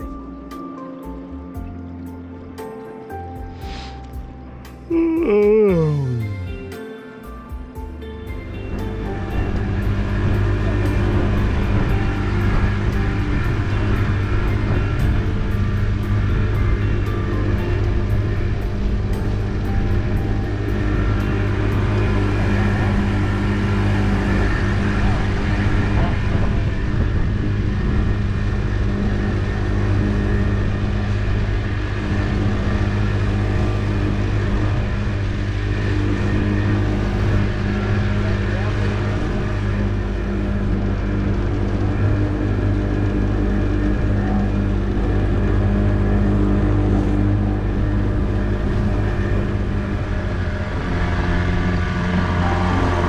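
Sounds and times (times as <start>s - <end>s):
outboard motor running: 0.0s - 53.0s
water rushing along hull: 8.7s - 53.0s.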